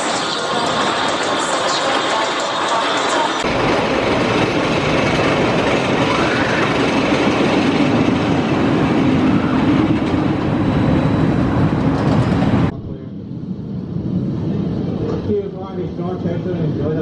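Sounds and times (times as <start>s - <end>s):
roller coaster wheels rumbling on rail: 0.0s - 17.0s.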